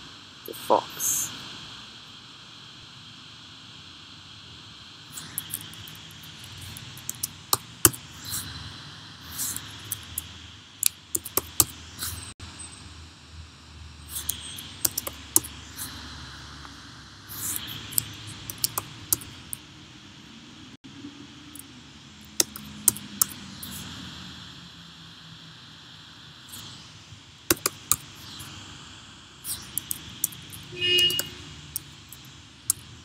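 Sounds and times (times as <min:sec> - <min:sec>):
faint hiss: 0:00.0 - 0:12.4, 0:13.9 - 0:19.6
computer keyboard typing: 0:05.2 - 0:08.4, 0:09.3 - 0:12.2, 0:14.1 - 0:16.0, 0:17.3 - 0:19.6, 0:21.6 - 0:23.8, 0:27.5 - 0:28.5, 0:29.5 - 0:32.9.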